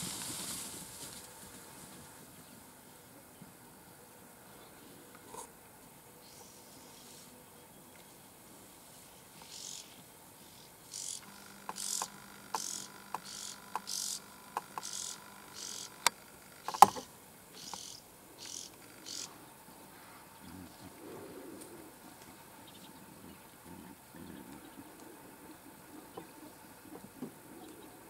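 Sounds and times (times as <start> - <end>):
rasping insect chirps: 9.4 - 19.4
sharp clicks: 11.2 - 17.9.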